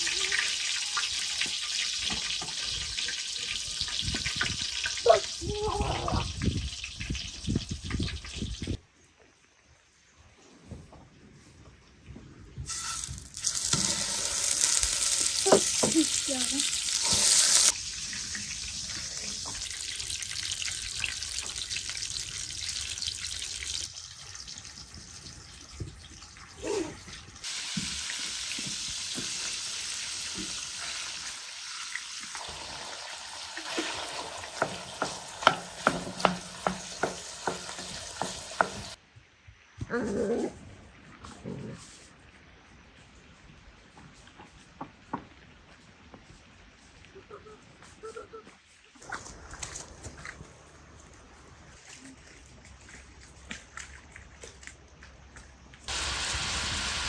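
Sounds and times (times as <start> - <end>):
fries sizzling in hot oil: 0.0 - 8.8, 12.7 - 26.4, 27.4 - 39.0, 55.9 - 57.0.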